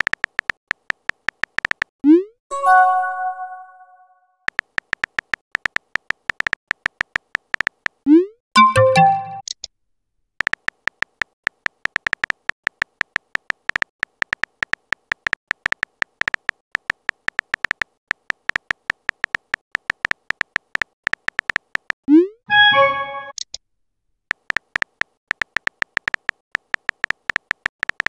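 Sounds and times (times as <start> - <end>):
phone keyboard typing clicks: 0.0 - 1.9, 4.5 - 8.0, 10.4 - 22.0, 24.3 - 28.0.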